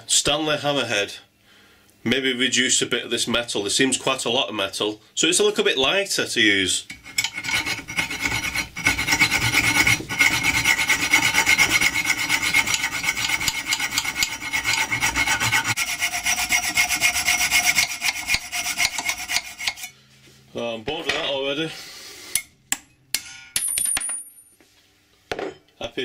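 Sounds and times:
hacksaw cutting metal: 6.9 - 19.9.

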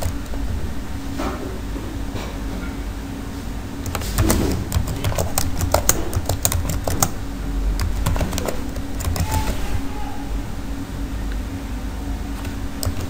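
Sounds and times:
computer keyboard typing: 0.0 - 0.4, 3.8 - 9.8, 12.3 - 13.0
steady low hum: 0.0 - 13.0.

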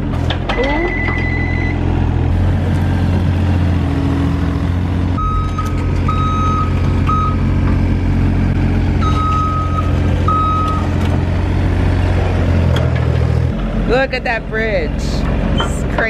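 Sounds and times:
excavator engine running: 0.0 - 16.0
travel alarm beeping: 0.8 - 1.8, 5.2 - 7.5, 9.0 - 10.9.

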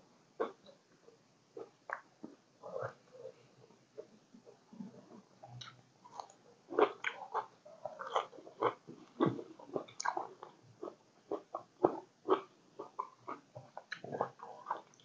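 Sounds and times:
person chewing crunchy food: 5.6 - 15.0.

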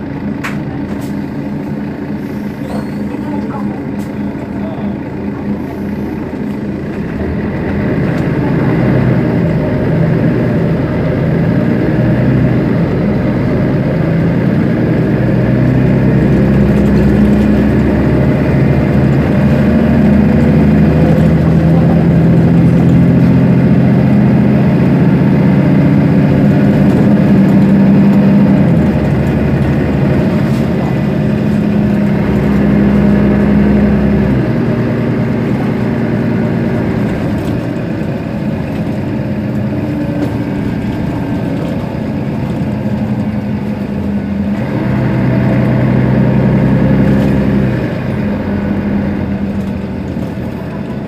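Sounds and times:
bus diesel engine idling: 0.0 - 51.0.

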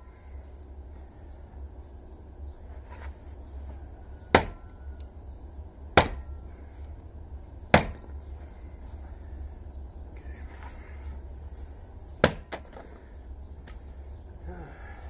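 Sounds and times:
axe chopping log: 4.3 - 4.6, 6.0 - 6.3, 7.7 - 8.1, 12.2 - 12.8.

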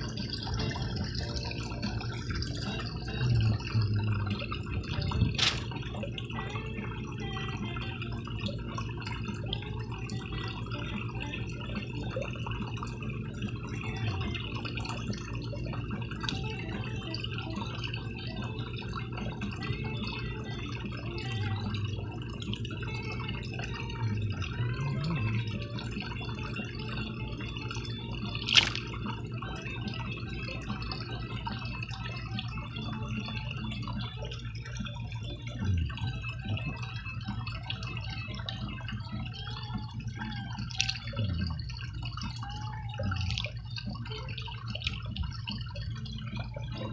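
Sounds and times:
low hum: 0.0 - 46.9
pond water trickling and dripping: 0.0 - 46.9
small water splashes: 0.0 - 46.9
sharp splash on water: 28.4 - 29.0.

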